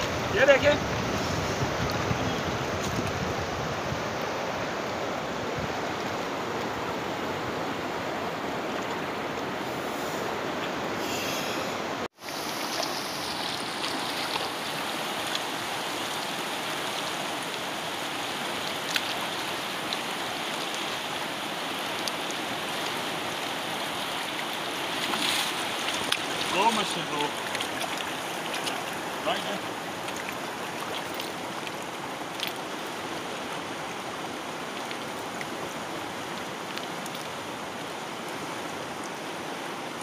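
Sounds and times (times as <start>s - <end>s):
river water rushing over rocks: 0.0s - 40.0s.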